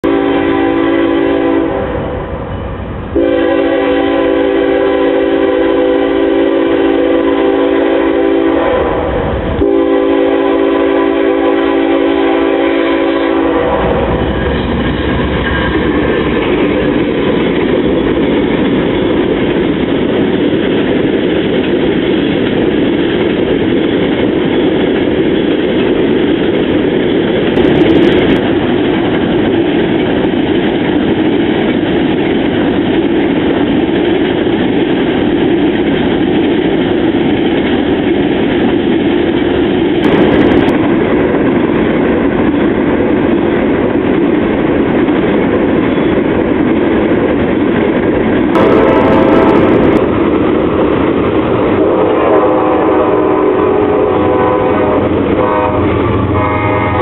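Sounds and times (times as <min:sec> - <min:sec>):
locomotive air horn blasts: 0:00.0 - 0:02.0, 0:03.2 - 0:14.2, 0:48.6 - 0:50.0, 0:51.7 - 0:57.0
train rumbling past: 0:00.0 - 0:57.0
train wheel clatter: 0:09.2 - 0:57.0.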